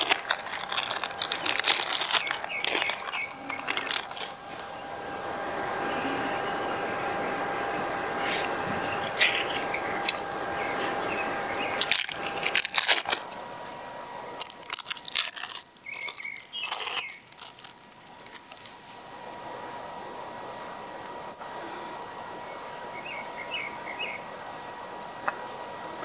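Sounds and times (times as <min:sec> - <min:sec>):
plastic film crinkling: 0:00.0 - 0:04.8, 0:10.8 - 0:13.4, 0:14.4 - 0:19.0.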